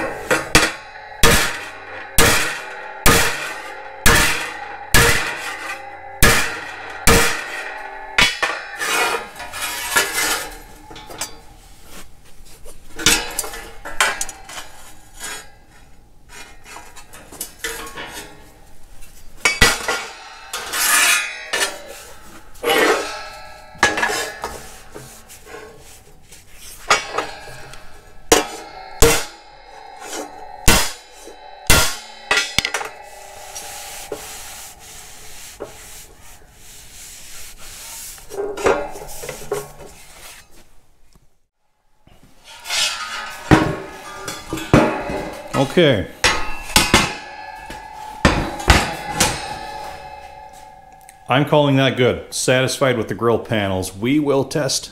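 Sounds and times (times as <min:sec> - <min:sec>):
hammer blows on metal: 0:00.0 - 0:12.0, 0:19.4 - 0:40.2, 0:42.1 - 0:53.1
metal scraping on metal: 0:00.0 - 0:41.1, 0:42.1 - 0:54.4
gloved hand rubbing metal panel: 0:19.4 - 0:40.5.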